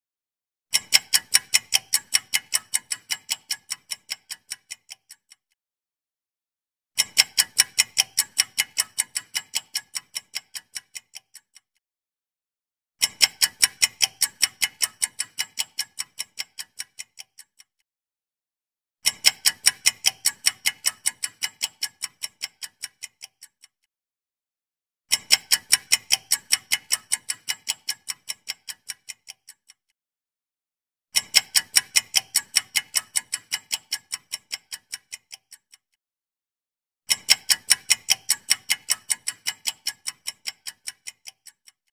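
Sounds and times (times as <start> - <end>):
countdown timer ticking: 0.9 - 5.3, 7.0 - 11.5, 19.1 - 23.6, 25.1 - 29.6, 31.2 - 35.7, 37.1 - 41.7.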